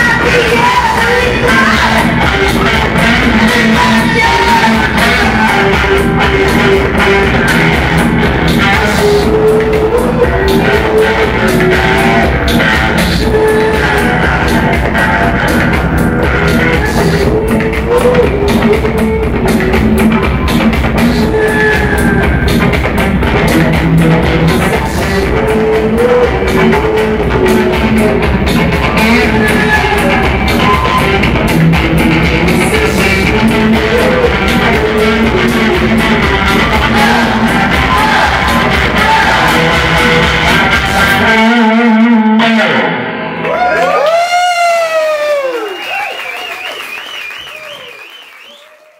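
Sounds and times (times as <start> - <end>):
woman singing into a microphone: 0.0 - 5.9
live rock band playing: 0.0 - 43.5.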